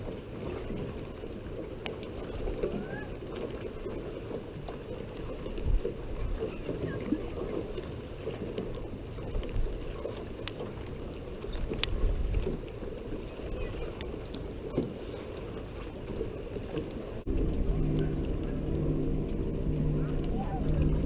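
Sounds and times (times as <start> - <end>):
light clicks and splashes: 0.0 - 21.0
water lapping at a dock: 0.0 - 21.0
wind buffeting microphone: 10.7 - 21.0.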